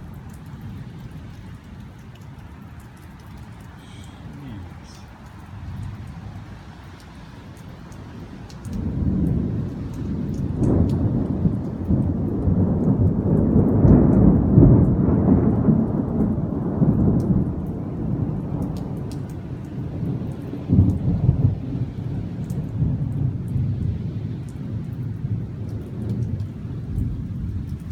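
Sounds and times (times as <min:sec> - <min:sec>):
thunder rumbling: 0:07.4 - 0:27.9.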